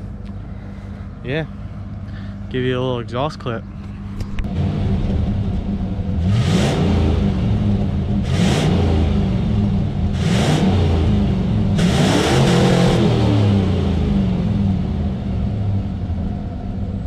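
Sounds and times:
engine idling and revving hard: 0.0s - 17.0s.

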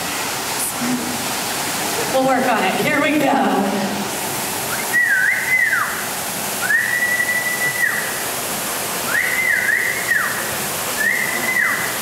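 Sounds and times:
steady hiss: 0.0s - 12.0s
person whistling: 4.7s - 5.9s, 6.6s - 8.1s, 9.1s - 10.4s, 11.0s - 11.8s.

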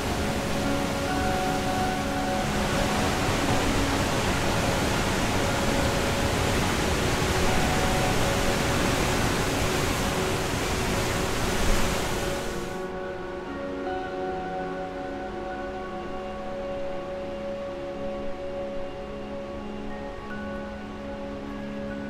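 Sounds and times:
waterfall roaring: 0.0s - 12.9s
faint background music: 0.0s - 22.0s.

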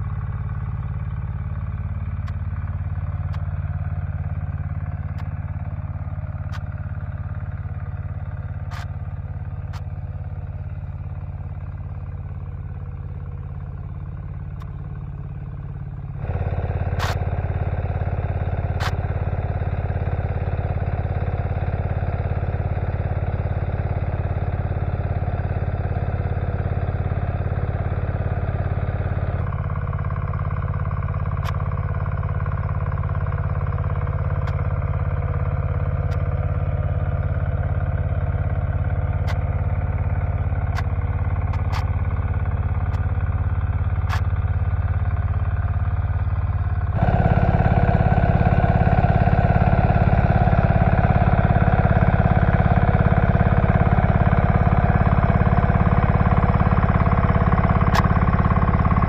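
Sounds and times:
walk-behind tractor engine running: 0.0s - 59.0s
sharp clicks: 16.2s - 17.3s, 40.7s - 42.1s, 44.0s - 44.4s.

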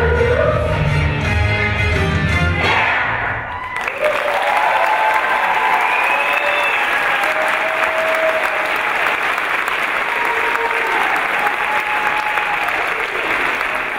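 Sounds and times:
people cheering: 2.6s - 13.9s
audience applauding: 3.5s - 13.9s.

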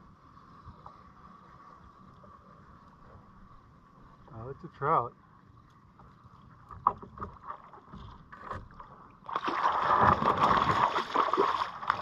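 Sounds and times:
fish splashing in water: 9.2s - 12.0s.

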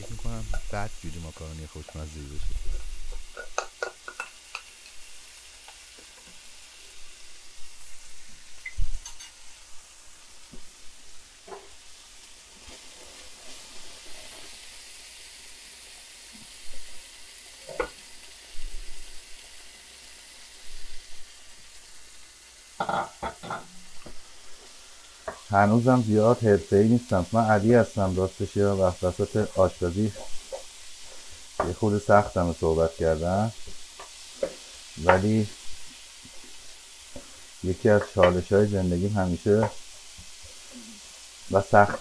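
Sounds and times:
meat sizzling in a frying pan: 0.0s - 42.0s
utensil scraping a pan: 29.3s - 32.0s.

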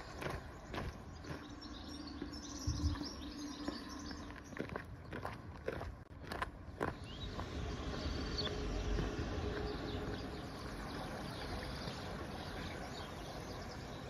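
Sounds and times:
bird chirps: 0.0s - 5.4s, 6.8s - 14.0s.

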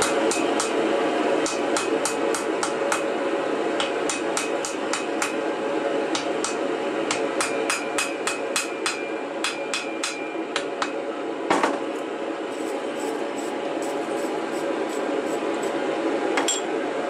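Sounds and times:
hammer striking steel on anvil: 1.4s - 3.0s, 3.8s - 5.4s, 6.2s - 11.0s, 16.4s - 16.7s.

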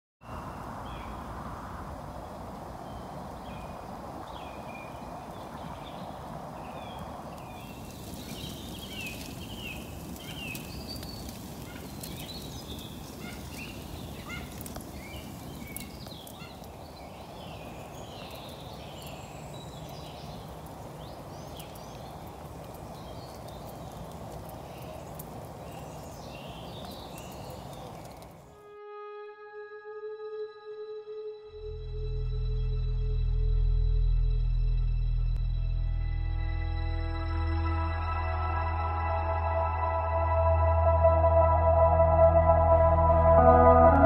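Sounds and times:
small birds chirping: 2.1s - 28.6s
wood fire crackling: 6.2s - 28.6s.

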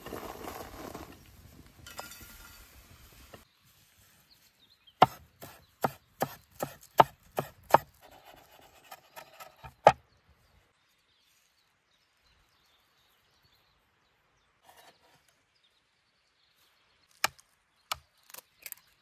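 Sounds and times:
knife chopping on wooden board: 5.0s - 7.9s.

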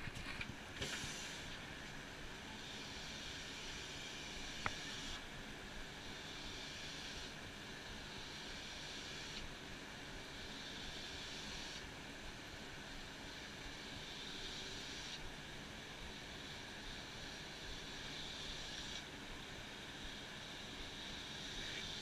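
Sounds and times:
spray gun hissing: 0.8s - 1.6s.

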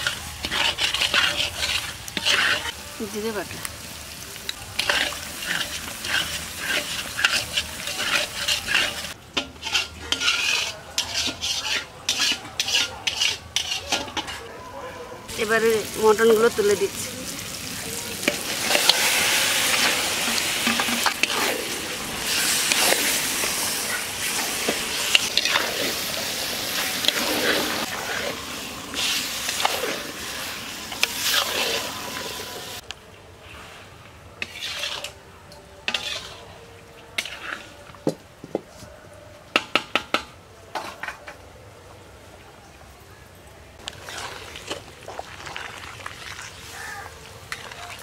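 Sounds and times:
spatula scraping a metal pan: 0.0s - 2.8s, 4.8s - 14.5s, 18.3s - 32.3s, 34.4s - 35.2s, 35.8s - 36.6s, 37.2s - 37.8s
meat sizzling in a pan: 0.0s - 13.7s, 15.3s - 32.8s
clinks of pots and utensils: 4.8s - 14.5s, 19.8s - 21.5s.

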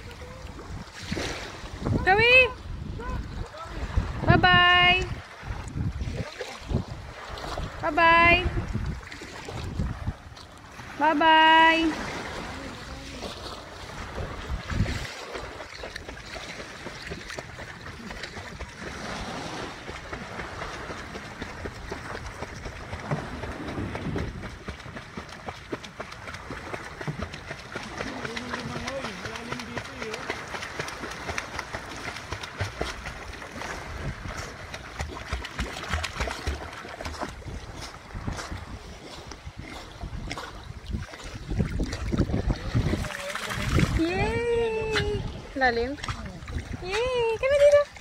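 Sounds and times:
small waves lapping: 0.0s - 48.0s
wind rumbling on microphone: 0.0s - 48.0s
dog paddling splashing water: 5.1s - 48.0s.

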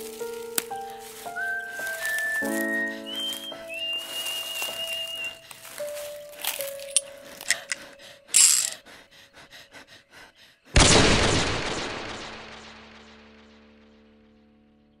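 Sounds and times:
low held chord: 0.0s - 8.2s.

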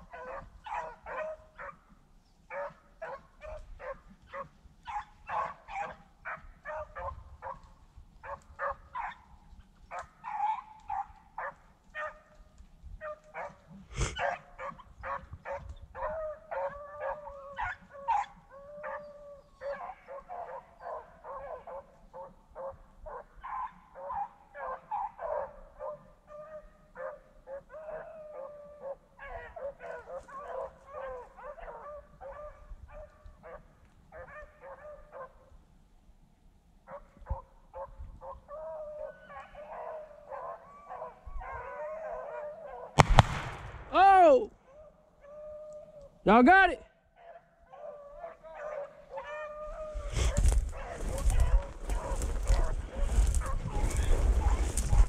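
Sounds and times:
dogs baying and howling: 0.0s - 35.5s, 36.9s - 43.0s, 44.2s - 46.2s, 47.1s - 55.0s
sharp crack: 43.0s - 44.4s.

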